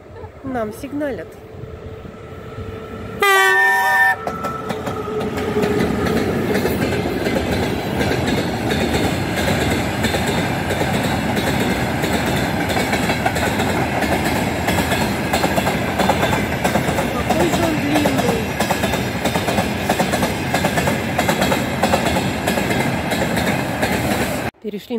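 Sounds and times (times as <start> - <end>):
train rumble and wheel clatter: 0.0 - 24.9
locomotive horn blast: 1.7 - 5.2.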